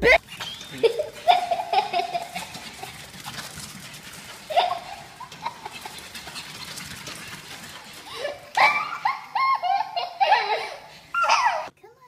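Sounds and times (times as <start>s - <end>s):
paws clicking on tile floor: 0.2s - 11.3s
animal high cry: 11.2s - 11.7s.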